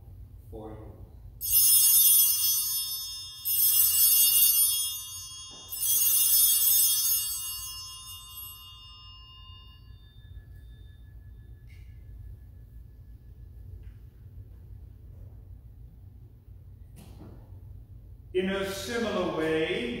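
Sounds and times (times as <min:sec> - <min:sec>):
altar bells jingling: 0:01.4 - 0:14.2.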